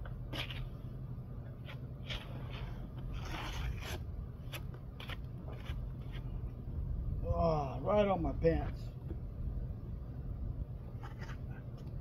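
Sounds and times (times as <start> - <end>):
trowel scraping wet stucco: 1.6 - 6.4.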